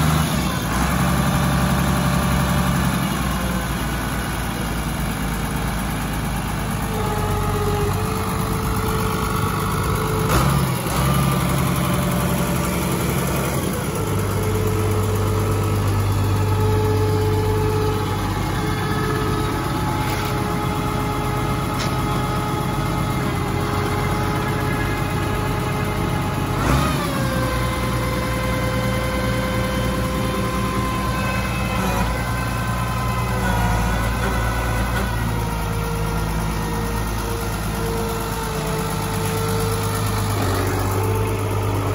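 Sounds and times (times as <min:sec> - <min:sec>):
tractor diesel engine idling: 0:00.0 - 0:41.9.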